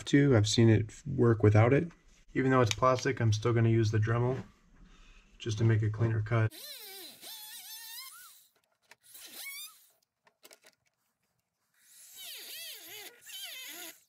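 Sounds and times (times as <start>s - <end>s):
rotary tool cutting plastic: 6.5s - 10.6s, 11.8s - 14.0s.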